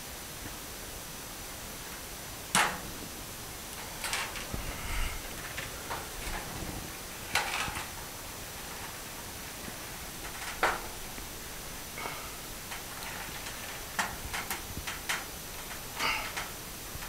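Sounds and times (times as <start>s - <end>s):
faint hiss: 0.0s - 17.0s
small clicks and scrapes: 3.7s - 6.7s, 7.3s - 8.0s, 12.0s - 17.0s.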